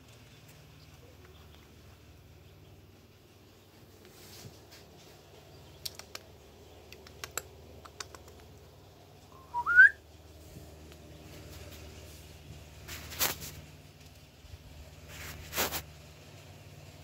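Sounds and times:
rising whistle-like chirp: 9.3 - 10.0.

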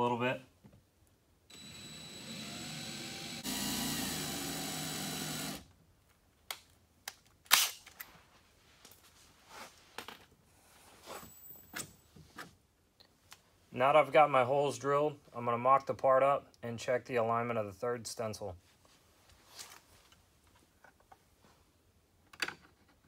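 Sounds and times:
cordless drill running: 1.5 - 5.6.

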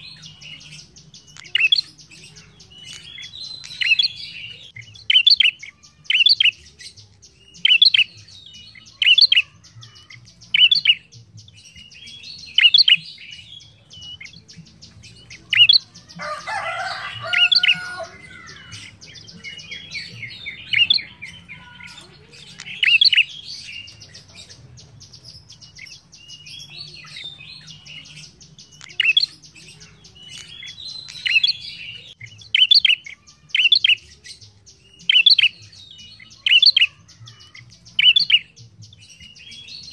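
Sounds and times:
bird chattering: 0.0 - 6.8, 12.5 - 34.0
songbird chirping: 0.0 - 39.9.

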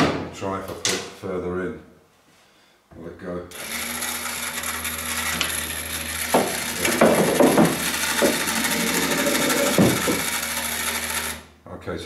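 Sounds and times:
ball-release motor humming: 3.5 - 11.5
pool balls knocking and rolling: 5.3 - 10.6.

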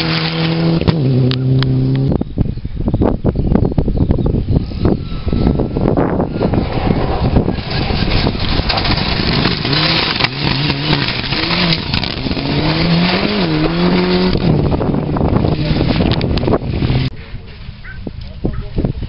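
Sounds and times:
tyres on gravel rushing: 0.0 - 0.9, 6.1 - 16.2
rally car engines running hard: 0.0 - 2.3, 5.8 - 17.2.

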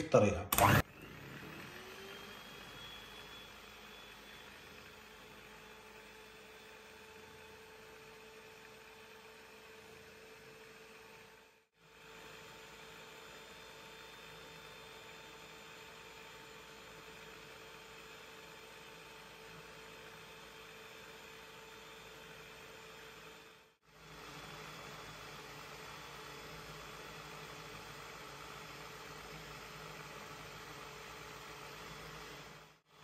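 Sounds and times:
stand mixer motor humming: 0.6 - 33.0.

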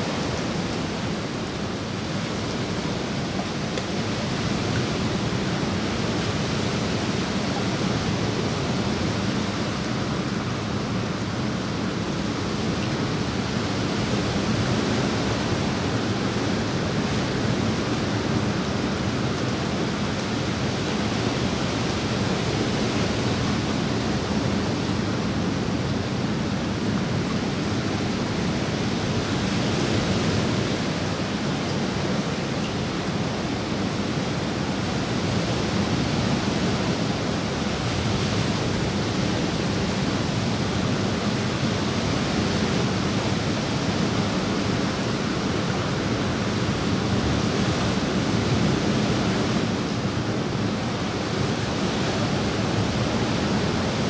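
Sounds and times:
rain falling on pool water: 0.0 - 54.0.

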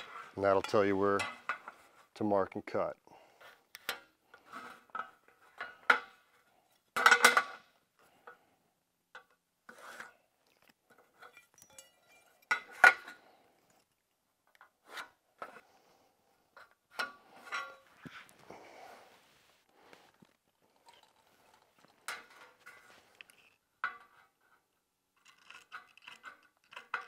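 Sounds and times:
metal square clinking on sheet metal: 11.2 - 13.2.

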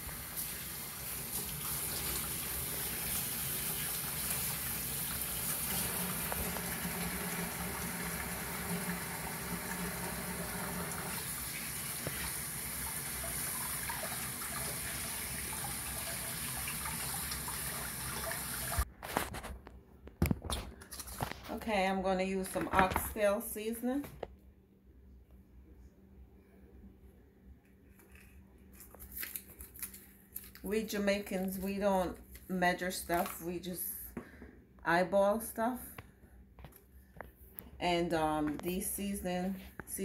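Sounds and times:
faucet water splashing into sink: 0.0 - 18.9.

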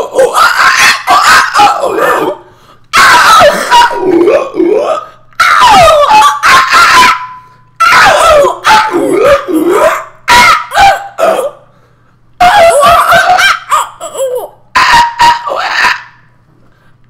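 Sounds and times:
yelping squawking cries: 5.4 - 11.5, 12.4 - 16.2.

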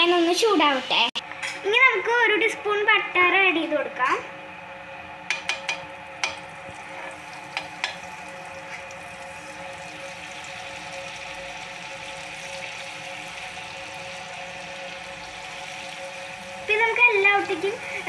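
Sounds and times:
steel spoon clicking against pan: 5.3 - 6.4
butter sizzling in a frying pan: 5.3 - 18.0.

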